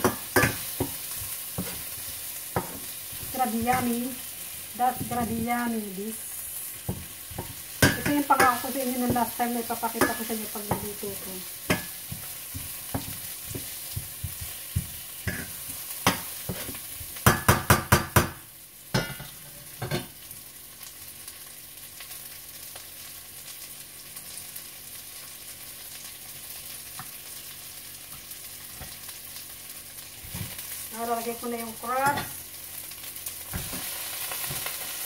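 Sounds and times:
onions frying in oil: 0:00.0 - 0:35.0
metal utensil clinking on pan: 0:10.0 - 0:10.9.

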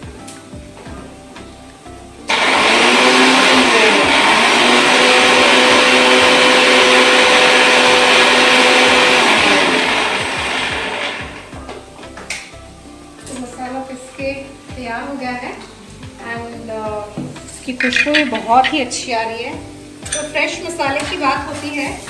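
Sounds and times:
mixer grinder grinding spices: 0:02.3 - 0:11.5.

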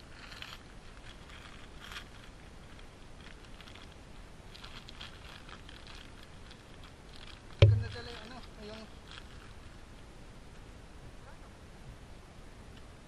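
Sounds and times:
light rustling and crackling: 0:00.0 - 0:10.7
steady low rumble: 0:07.6 - 0:08.5.

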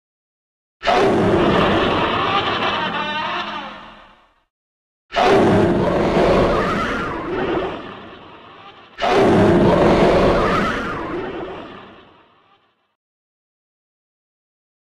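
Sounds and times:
monster roars: 0:00.8 - 0:02.3, 0:05.1 - 0:08.2, 0:09.0 - 0:12.0.

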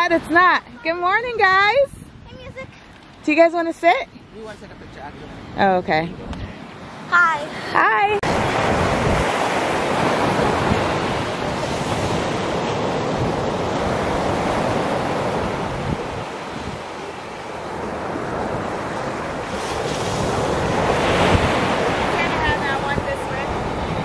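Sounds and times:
wind buffeting microphone: 0:00.0 - 0:03.6, 0:07.9 - 0:24.0
ocean surf breaking on beach: 0:06.8 - 0:24.0.

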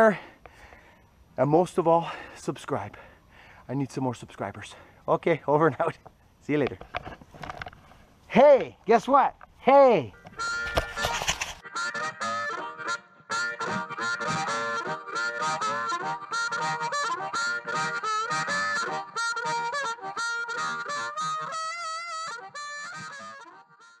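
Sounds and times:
harmonica melody: 0:09.9 - 0:24.0.

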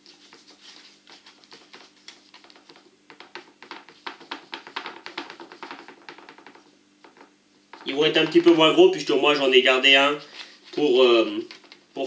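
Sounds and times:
fingers tapping dough: 0:01.1 - 0:08.7.

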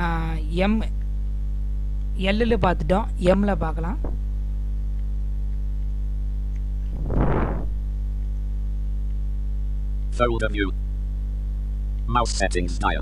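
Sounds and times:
electrical mains hum: 0:00.0 - 0:13.0
brief rush of noise: 0:06.9 - 0:07.9.

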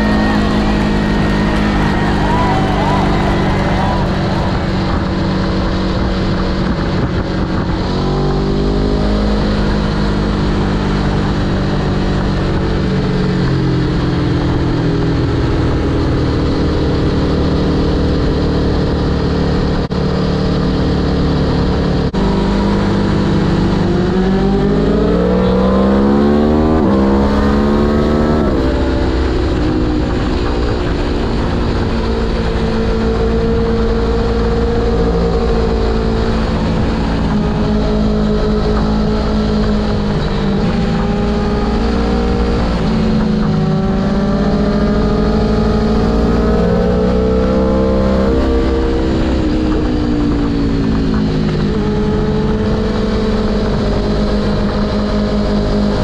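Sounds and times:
motorcycle engine at speed: 0:00.0 - 0:56.0
wind rush: 0:00.0 - 0:56.0.

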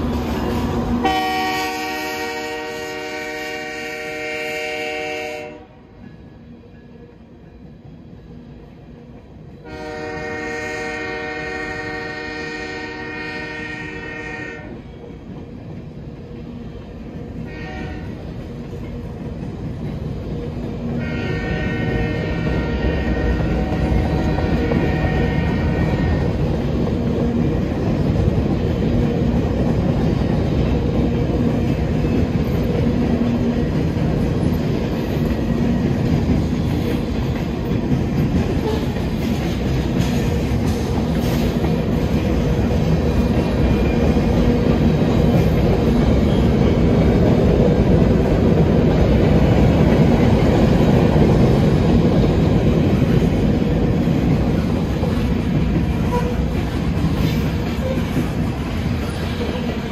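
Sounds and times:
freight train rumbling past: 0:00.0 - 0:59.9
train horn blast: 0:01.0 - 0:06.0, 0:09.6 - 0:14.9, 0:17.4 - 0:18.3, 0:21.0 - 0:26.4, 0:56.0 - 0:56.6.

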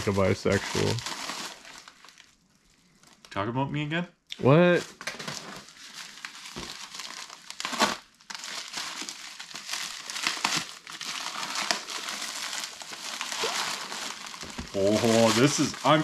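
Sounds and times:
packaging bag crinkling and tearing: 0:00.0 - 0:03.3, 0:04.9 - 0:16.0.

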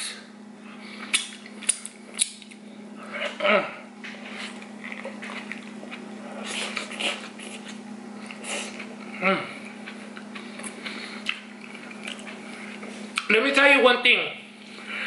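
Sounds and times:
steady low hum: 0:00.0 - 0:15.0
biting and chewing food: 0:01.0 - 0:03.4, 0:04.0 - 0:13.3.

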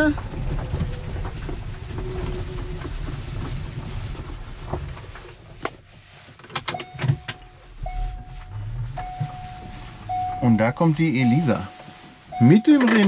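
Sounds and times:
small car rolling: 0:00.0 - 0:13.0
electronic warning beep: 0:06.8 - 0:13.0.

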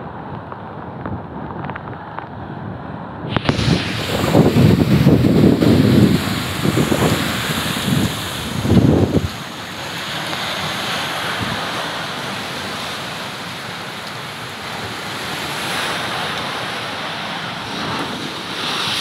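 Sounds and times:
wind buffeting microphone: 0:00.1 - 0:11.9
surf breaking over shallows: 0:03.3 - 0:19.0.

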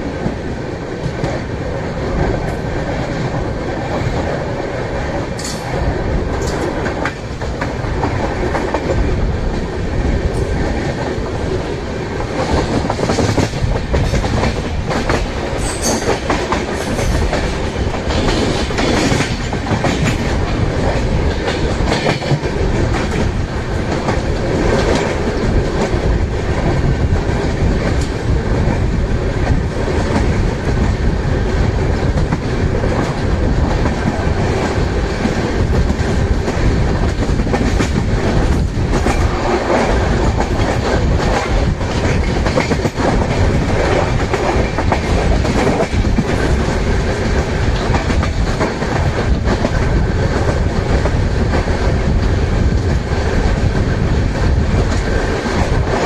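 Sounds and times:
passing train rumble: 0:00.0 - 0:56.0.

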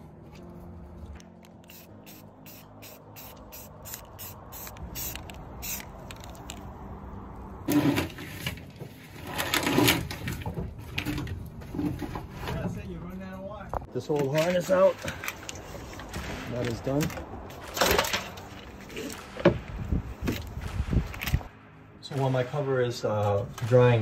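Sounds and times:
spray paint bursts: 0:01.5 - 0:06.3
spray can ball rattling: 0:01.5 - 0:06.6.

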